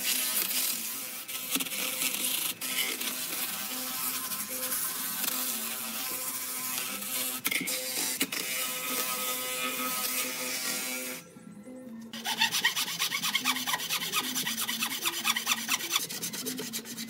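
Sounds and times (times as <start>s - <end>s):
disc scraping wood: 12.2s - 17.0s.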